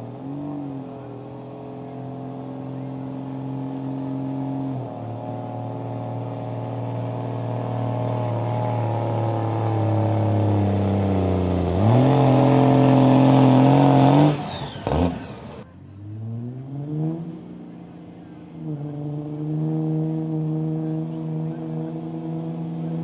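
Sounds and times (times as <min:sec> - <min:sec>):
pickup engine straining under load: 0:00.0 - 0:16.2.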